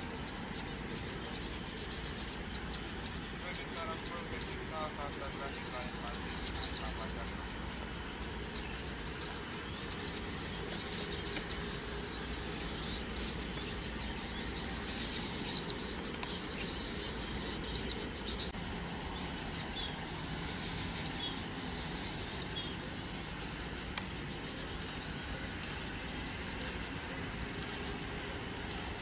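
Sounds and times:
insects trilling: 0:00.0 - 0:29.0.

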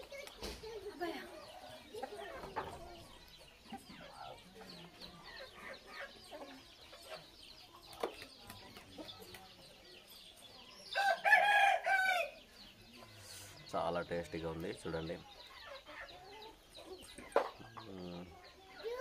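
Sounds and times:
chickens clucking: 0:00.0 - 0:19.0
rooster crowing: 0:11.0 - 0:12.4.

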